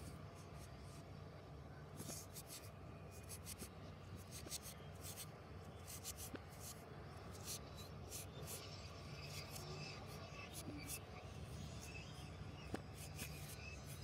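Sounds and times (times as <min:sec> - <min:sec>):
eraser rubbing on paper: 0:12.9 - 0:14.0.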